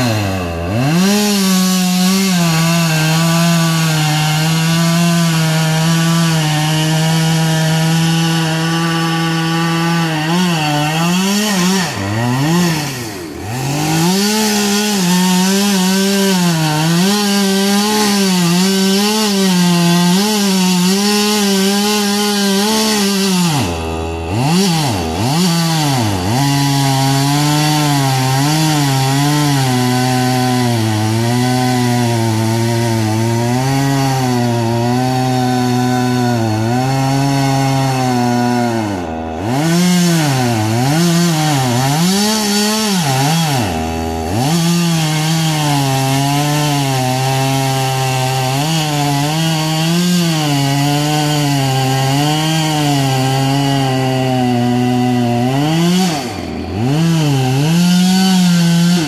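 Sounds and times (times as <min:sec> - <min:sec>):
chainsaw cutting tree trunk: 0:00.0 - 0:59.0.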